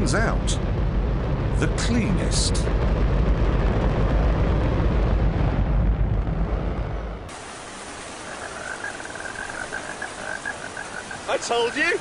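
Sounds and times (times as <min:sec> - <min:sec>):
rocket engine roaring: 0:00.0 - 0:08.4.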